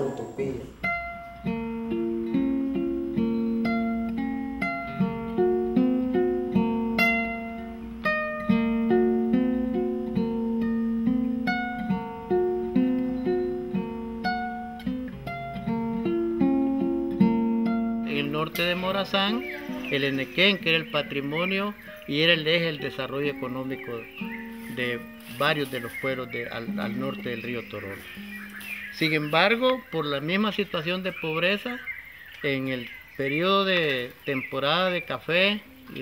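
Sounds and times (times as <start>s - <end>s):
guitar melody: 0.0s - 31.5s.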